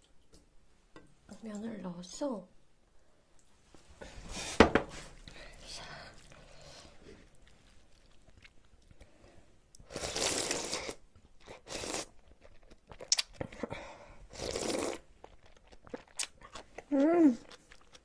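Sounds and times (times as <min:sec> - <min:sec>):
slurping broth: 0:09.8 - 0:13.7, 0:14.3 - 0:16.1.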